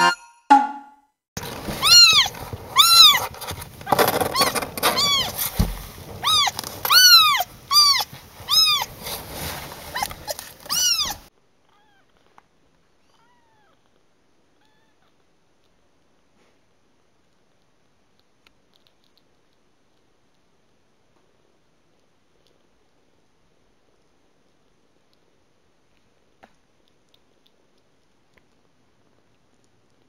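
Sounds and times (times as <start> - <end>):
kitten mewing: 6.2 - 8.9, 9.9 - 12.1.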